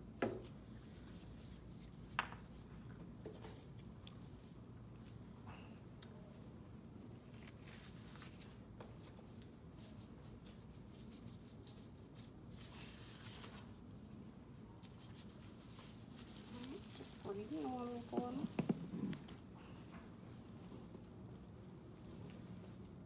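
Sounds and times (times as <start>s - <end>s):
plastic gloves rustling: 6.2s - 19.5s.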